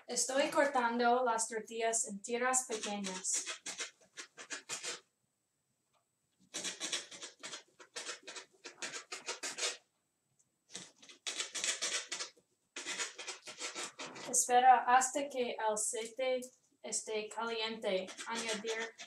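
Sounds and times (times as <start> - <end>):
scratchy cutting of tortillas: 2.7 - 5.0, 6.4 - 9.8, 10.7 - 14.4, 18.0 - 19.0.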